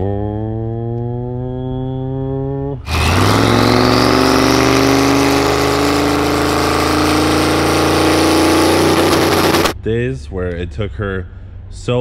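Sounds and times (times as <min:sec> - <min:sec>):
car engine at raised revs: 0:00.0 - 0:09.8
high whine rising: 0:02.9 - 0:09.8.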